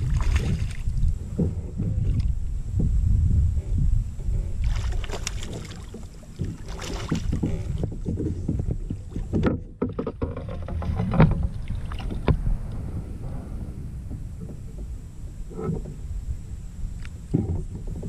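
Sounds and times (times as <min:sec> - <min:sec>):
water splashing: 0:00.0 - 0:01.1, 0:04.6 - 0:09.4
wind rumble on microphone: 0:00.0 - 0:18.0
sharp knocks on a kayak: 0:06.4 - 0:12.4.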